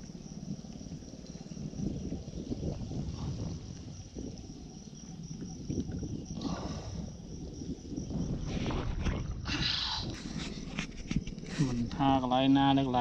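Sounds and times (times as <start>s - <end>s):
insects chirring: 0.0s - 13.0s
water sloshing around wading body: 0.2s - 11.6s.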